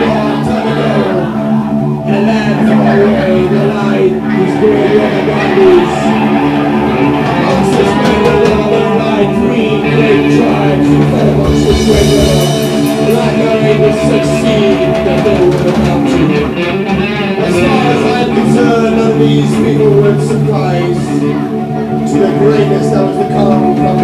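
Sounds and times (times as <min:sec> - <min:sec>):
electric guitar: 0:00.0 - 0:24.0
live rock band playing: 0:00.0 - 0:24.0
drum kit: 0:07.0 - 0:20.5.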